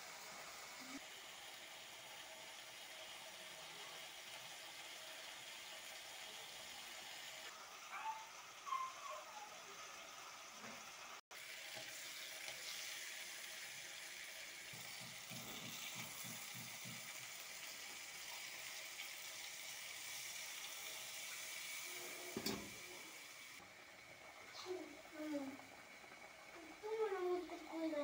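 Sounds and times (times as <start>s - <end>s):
food sizzling in hot oil: 0.0s - 28.0s
oil bubbling: 9.6s - 28.0s.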